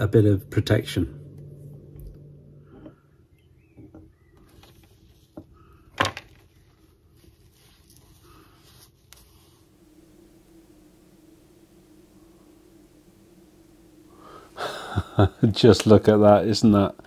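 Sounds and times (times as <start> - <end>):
cloth rubbing hands: 6.6 - 9.7.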